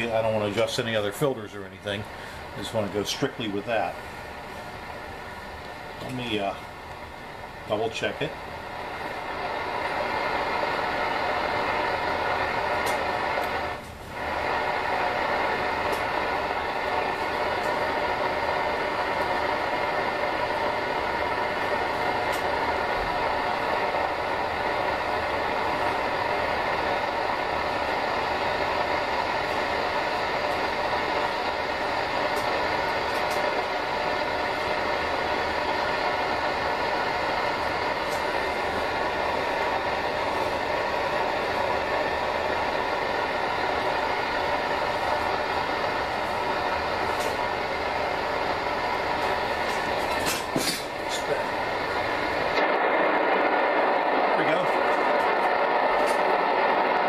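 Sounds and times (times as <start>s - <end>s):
radio receiver noise hiss: 0.0s - 57.0s.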